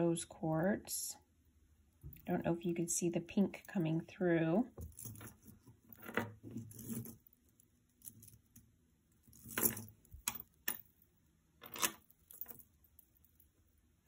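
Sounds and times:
jewelry beads and chain clinking: 0:04.7 - 0:13.8.

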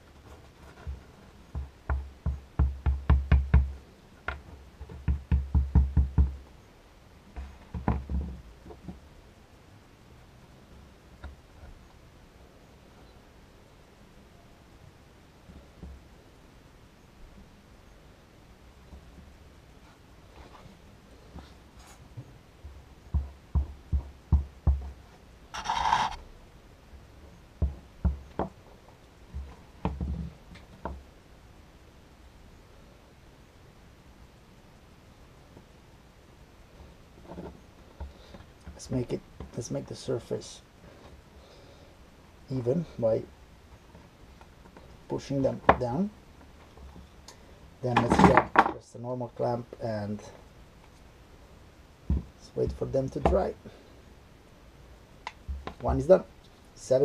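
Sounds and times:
wooden blocks tapping on wood: 0:01.5 - 0:06.4
wooden knocks on a workbench: 0:01.6 - 0:03.7, 0:23.1 - 0:24.9.

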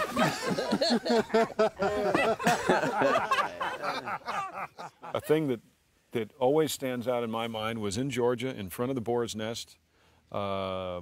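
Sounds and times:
group of people laughing: 0:00.0 - 0:05.4.

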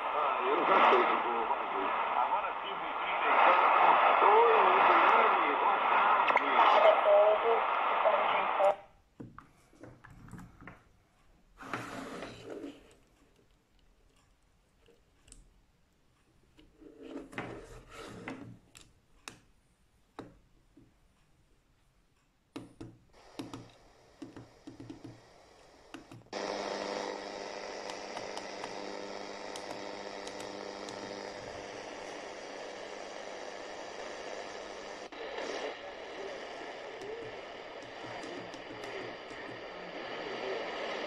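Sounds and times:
radio static hiss: 0:00.0 - 0:08.9, 0:23.2 - 0:41.0.

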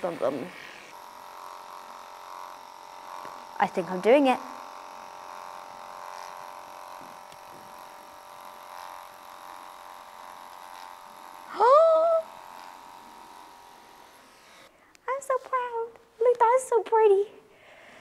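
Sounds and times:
electric clippers buzzing: 0:00.0 - 0:16.5
person's voice: 0:03.6 - 0:04.5, 0:11.5 - 0:12.3, 0:15.1 - 0:17.4.

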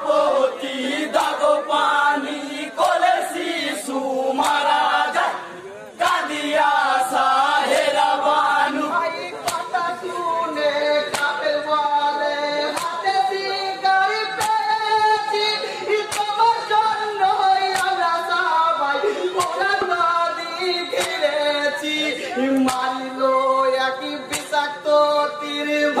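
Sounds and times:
men singing in unison: 0:00.0 - 0:26.0
sharp percussive beat: 0:09.4 - 0:09.8, 0:11.0 - 0:11.6, 0:12.7 - 0:13.4, 0:20.8 - 0:21.5, 0:24.2 - 0:24.7.

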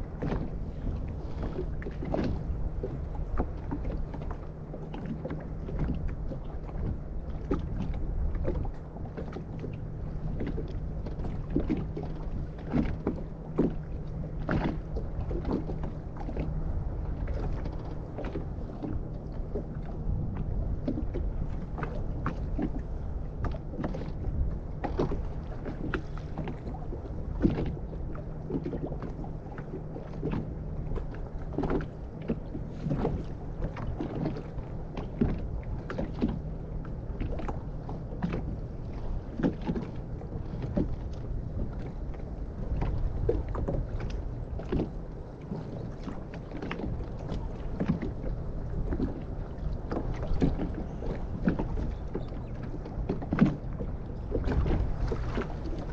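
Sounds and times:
waves slapping against boat hull: 0:00.0 - 0:55.9.

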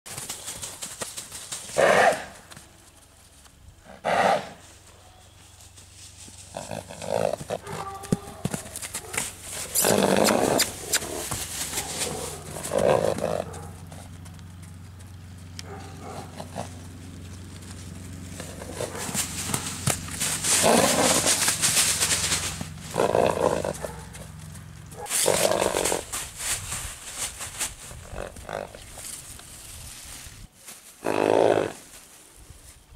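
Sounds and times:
horse snorting: 0:01.7 - 0:02.4, 0:03.8 - 0:04.6, 0:06.4 - 0:14.2, 0:15.6 - 0:17.0, 0:17.8 - 0:26.2, 0:27.9 - 0:28.9, 0:31.0 - 0:31.8.

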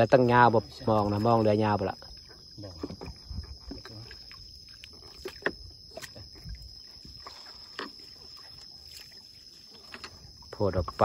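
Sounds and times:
high insect whine: 0:00.0 - 0:11.0
water dripping and splashing: 0:00.8 - 0:11.0
knocks of net against hull: 0:05.0 - 0:06.5.

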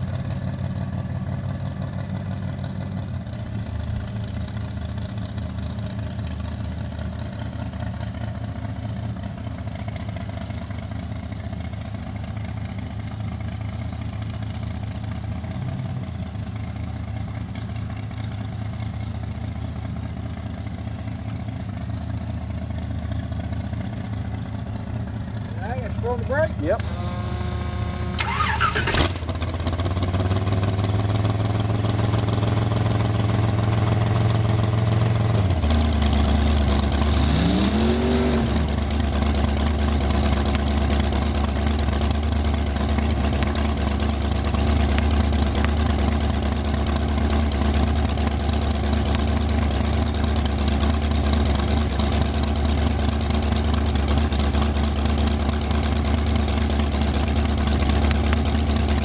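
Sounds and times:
dragster engine idling: 0:00.0 - 0:37.1, 0:38.6 - 0:59.0
engine revving: 0:25.5 - 0:40.4.

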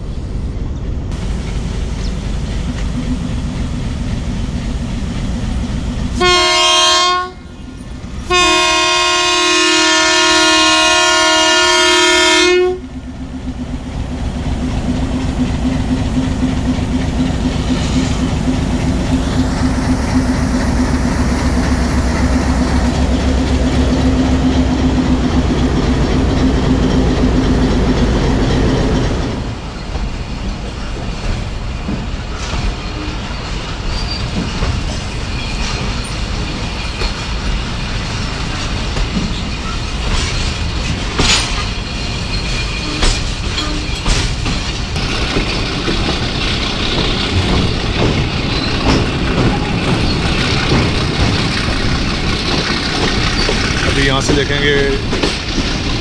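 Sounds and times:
moving train rumble: 0:00.0 - 0:56.0
train horn blasts: 0:06.2 - 0:07.5, 0:08.3 - 0:12.9.

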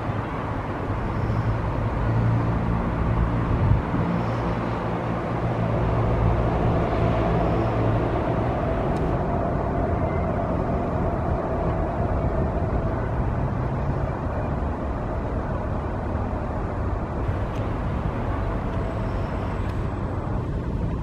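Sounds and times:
low outdoor rumble: 0:00.0 - 0:21.0.

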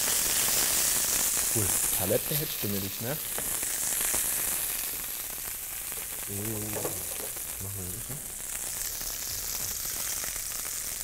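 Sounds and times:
meat sizzling in a pan: 0:00.0 - 0:11.0.

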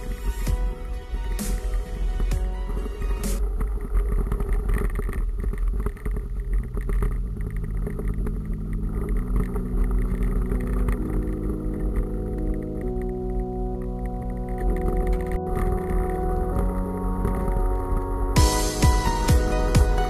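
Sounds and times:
held low music notes: 0:00.0 - 0:03.9, 0:06.7 - 0:20.0
bike rattling over ground: 0:00.0 - 0:20.0
wind rumble on microphone: 0:00.0 - 0:20.0.

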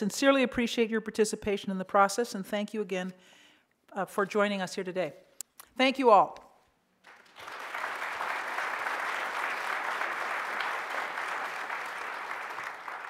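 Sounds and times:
audience applauding: 0:07.0 - 0:13.0.

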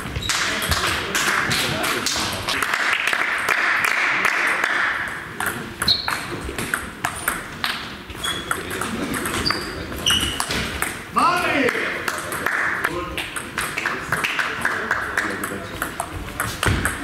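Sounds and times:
table tennis ball ticking: 0:05.1 - 0:11.0.

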